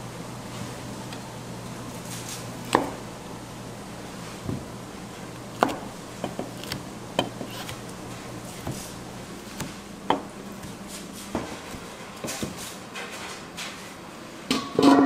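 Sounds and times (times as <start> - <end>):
low kitchen hum: 0.0 - 15.0
knife slicing: 5.6 - 9.9.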